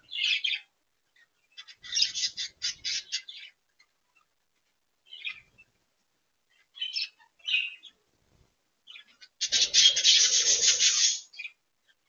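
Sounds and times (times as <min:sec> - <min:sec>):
budgerigars chirping: 0:00.1 - 0:04.3, 0:05.1 - 0:05.7, 0:06.5 - 0:08.0, 0:08.9 - 0:12.0.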